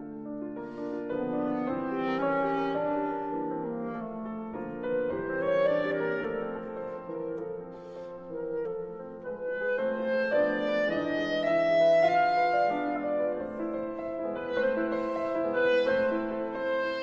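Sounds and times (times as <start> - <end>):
clarinet melody: 0.0 - 17.0
piano accompaniment: 0.0 - 17.0.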